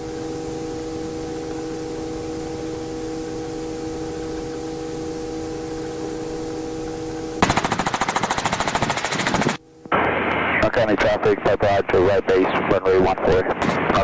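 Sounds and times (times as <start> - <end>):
helicopter cabin hiss and hum: 0.0 - 14.0
rotor blades chopping: 7.4 - 9.6.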